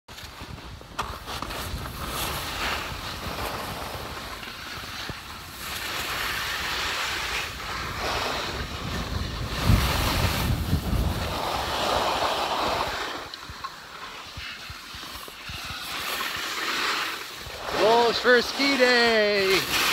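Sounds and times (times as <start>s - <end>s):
wind buffeting microphone: 0.3s - 13.6s.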